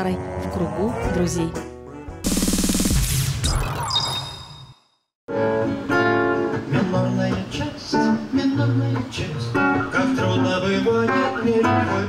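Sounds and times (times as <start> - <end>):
acoustic guitar playing: 5.3 - 12.0.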